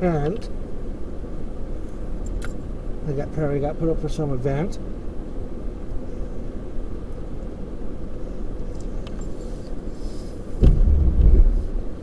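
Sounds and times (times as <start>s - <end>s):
loud thud: 10.6s - 11.7s
vehicle rolling over dirt: 10.6s - 11.7s.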